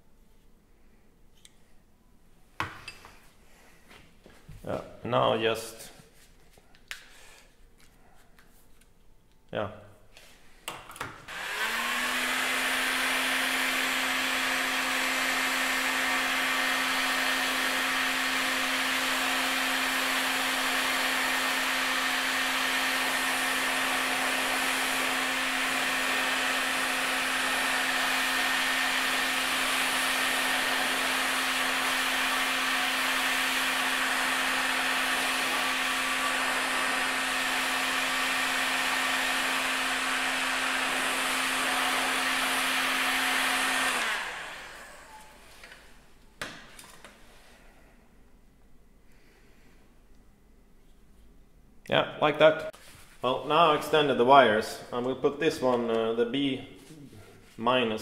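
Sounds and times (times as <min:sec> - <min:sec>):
heat gun fan humming: 0:10.7 - 0:46.9.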